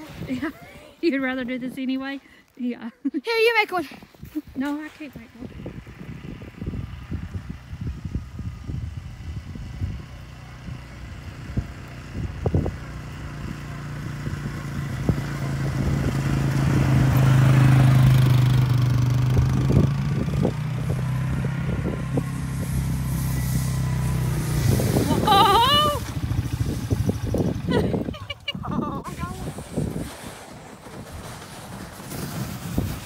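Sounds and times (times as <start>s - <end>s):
atv engine passing: 4.9s - 33.0s
person yelling: 25.1s - 26.1s.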